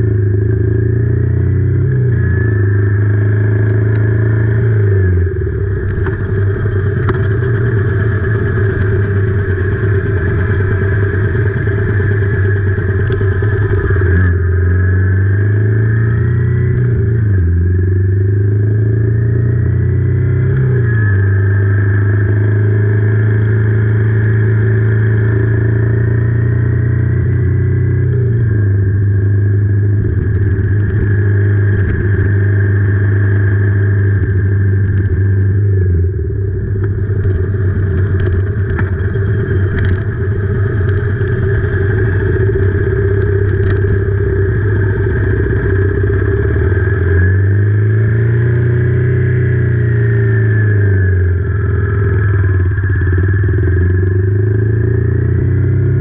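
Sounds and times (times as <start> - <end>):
motorcycle engine running: 0.0 - 56.0
scattered clicks: 36.8 - 44.2.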